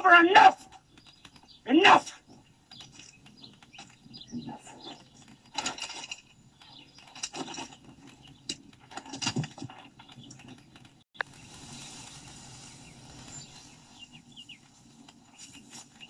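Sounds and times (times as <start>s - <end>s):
rustles: 0.1s - 16.0s
clinks: 5.5s - 9.8s.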